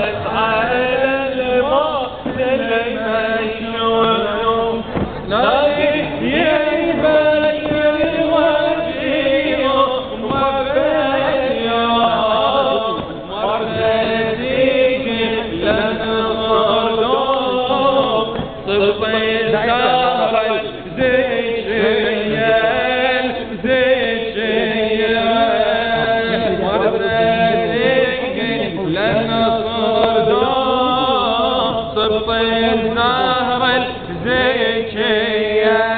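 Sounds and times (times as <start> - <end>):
man chanting a lament: 0.0 - 35.9.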